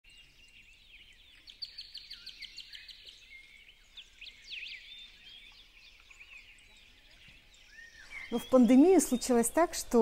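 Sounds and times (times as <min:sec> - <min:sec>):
songbirds singing and chirping: 0:00.1 - 0:10.0.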